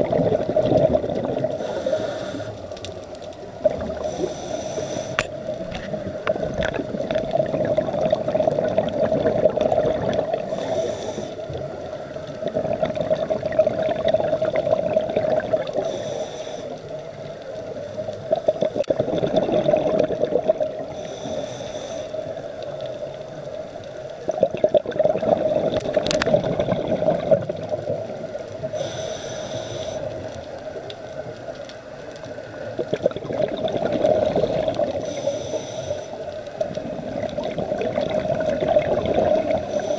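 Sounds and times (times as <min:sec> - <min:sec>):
exhaled bubbles underwater: 0:00.0 - 0:02.7, 0:03.4 - 0:16.1, 0:16.8 - 0:21.4, 0:22.2 - 0:29.0, 0:29.8 - 0:35.6, 0:36.2 - 0:39.9
regulator inhalation hiss: 0:01.6 - 0:02.7, 0:04.0 - 0:05.4, 0:10.4 - 0:11.6, 0:15.8 - 0:16.9, 0:20.9 - 0:22.5, 0:28.7 - 0:30.3, 0:35.0 - 0:36.3, 0:39.6 - 0:39.9.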